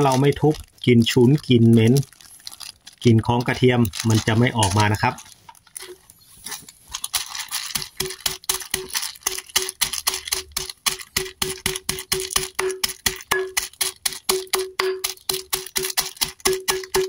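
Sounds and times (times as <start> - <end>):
bottle pounding bag on concrete: 0.0 - 2.2, 7.1 - 17.0.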